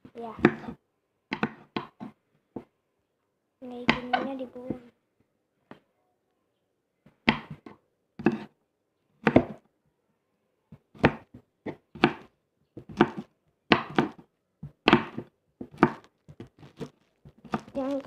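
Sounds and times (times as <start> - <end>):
knife chopping on wooden board: 0.4 - 2.7, 3.8 - 4.3, 7.2 - 8.5, 9.2 - 9.6, 10.9 - 17.8.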